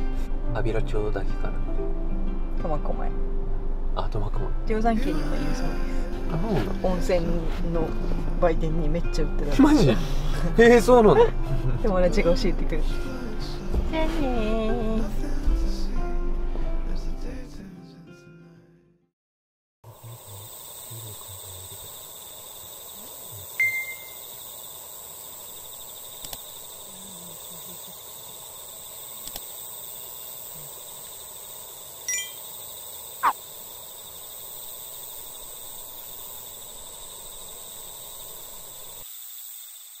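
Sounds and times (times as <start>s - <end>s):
steady high hiss: 19.9s - 40.0s.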